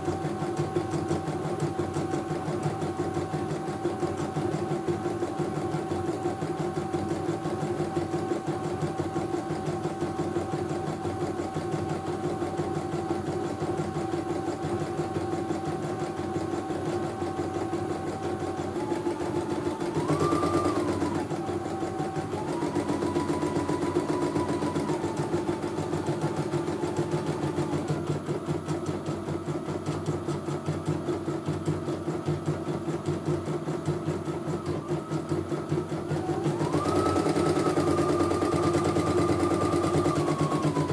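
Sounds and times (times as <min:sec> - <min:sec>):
motor whine: 0:36.1 - 0:40.9.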